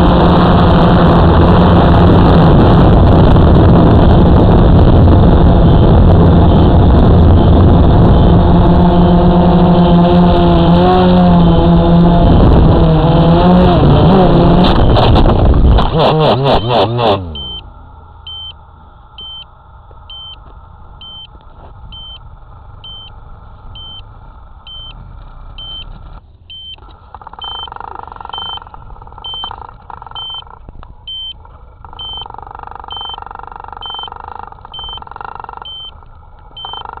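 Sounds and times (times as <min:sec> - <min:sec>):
drone beeping alarm tone: 0:16.2 - 0:18.6, 0:19.2 - 0:19.5, 0:20.1 - 0:22.2, 0:22.8 - 0:23.2, 0:23.8 - 0:25.0, 0:25.6 - 0:25.9, 0:26.5 - 0:37.0.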